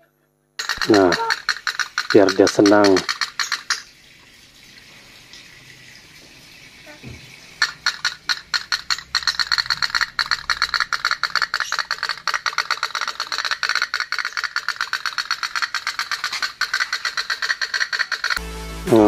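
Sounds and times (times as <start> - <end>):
toy steam boat popping: 0.6 - 3.9, 7.6 - 18.4.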